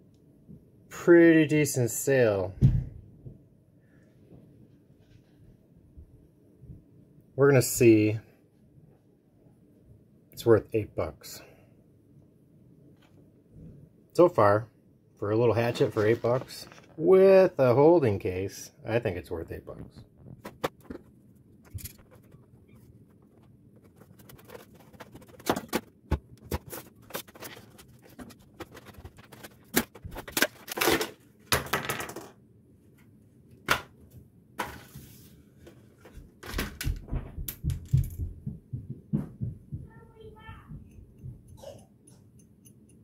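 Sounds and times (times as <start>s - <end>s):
plastic packaging crinkling: 21.7s - 31.2s
scissors cutting plastic packaging: 26.5s - 31.2s.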